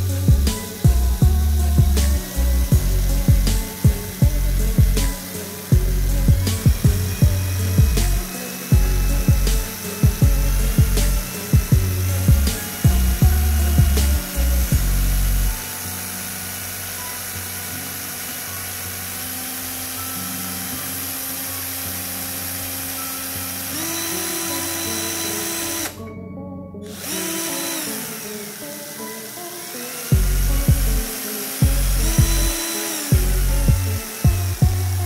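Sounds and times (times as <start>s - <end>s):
cordless drill motor whining: 0.0s - 26.2s, 26.8s - 35.0s.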